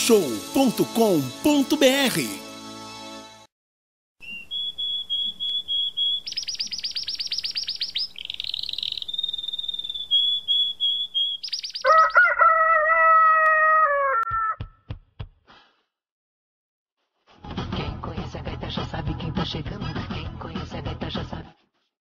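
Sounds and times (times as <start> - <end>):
birds chirping and trilling: 4.2 - 14.2
long crowing call: 11.8 - 14.6.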